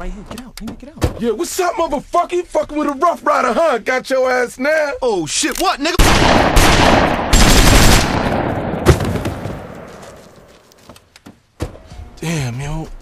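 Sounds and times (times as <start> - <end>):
automatic gunfire: 6.0 - 9.7
loud gunshot: 6.0 - 9.7
gunfire echo: 6.0 - 10.1.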